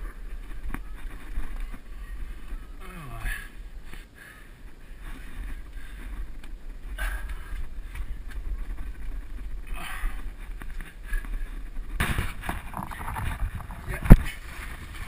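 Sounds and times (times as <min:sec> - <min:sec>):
low wind rumble: 0:00.0 - 0:15.0
microphone handling noise: 0:05.0 - 0:15.0.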